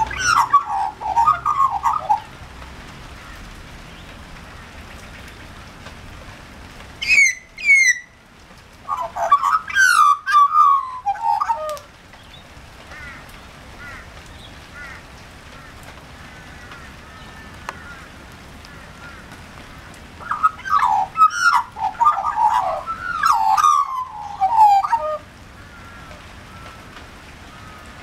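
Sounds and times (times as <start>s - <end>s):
magpie warbling calls: 0.0s - 2.3s, 7.0s - 8.1s, 8.9s - 11.8s, 20.2s - 26.7s.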